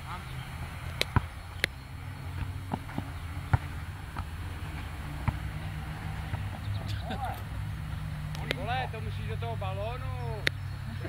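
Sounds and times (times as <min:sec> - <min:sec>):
low steady hum: 0:00.0 - 0:11.0
ball kicked and bouncing: 0:02.3 - 0:06.8.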